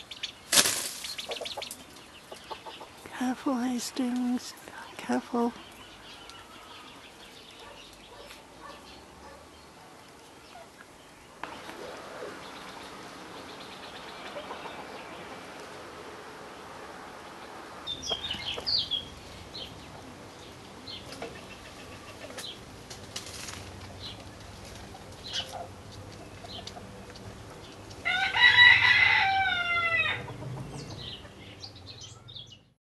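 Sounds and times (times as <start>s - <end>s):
rustle: 0.0s - 32.6s
chickens clucking and chirping: 0.0s - 32.7s
cockerel crowing: 28.0s - 30.4s.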